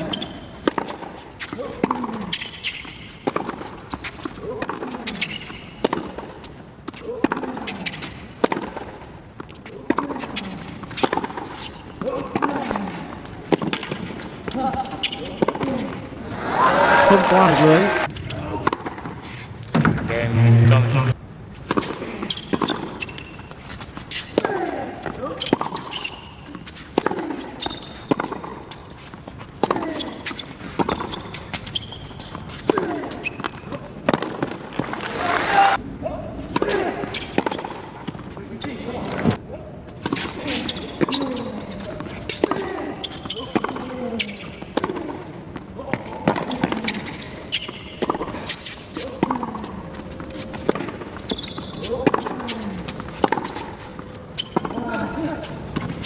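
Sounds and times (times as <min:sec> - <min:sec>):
tennis racket hitting ball: 0:00.1 - 0:08.9, 0:09.8 - 0:15.8, 0:23.9 - 0:28.8, 0:50.5 - 0:53.8.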